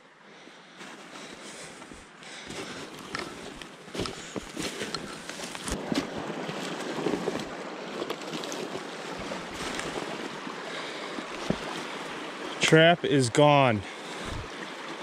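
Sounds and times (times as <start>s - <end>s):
stream water rushing: 2.4s - 15.0s
twigs scraping and snapping: 3.0s - 5.8s.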